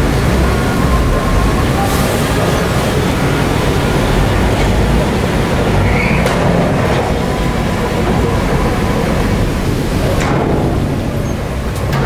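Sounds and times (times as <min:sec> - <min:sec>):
heavy diesel machinery running: 0:00.0 - 0:12.0.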